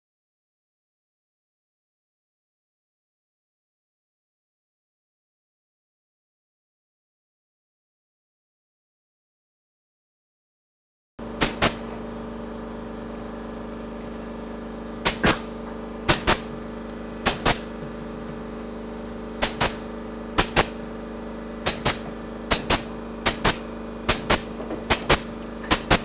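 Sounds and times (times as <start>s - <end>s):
steady machine hum: 11.2s - 26.0s
pneumatic staple gun snapping: 11.4s - 11.9s, 15.0s - 15.5s, 16.1s - 16.5s, 17.2s - 17.7s, 19.4s - 20.8s, 21.6s - 26.0s.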